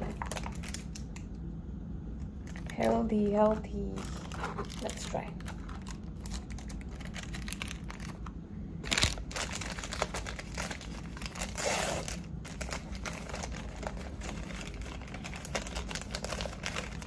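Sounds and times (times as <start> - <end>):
paper crinkling and tearing: 3.9 - 17.0.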